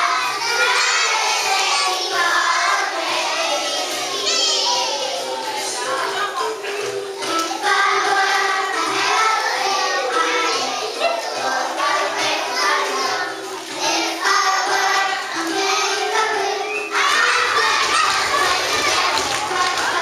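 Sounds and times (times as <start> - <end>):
backing music: 0.0 - 20.0
children singing in unison: 0.0 - 20.0.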